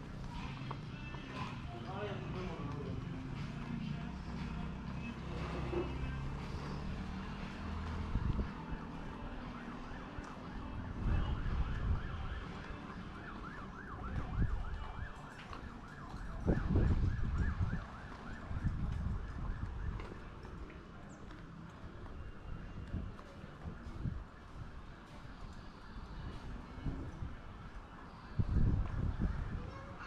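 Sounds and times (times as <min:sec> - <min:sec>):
wind rumbling on microphone: 0:07.9 - 0:09.4, 0:10.6 - 0:12.5, 0:13.9 - 0:15.1, 0:15.9 - 0:21.3, 0:22.0 - 0:30.0
siren yelping: 0:08.8 - 0:20.1.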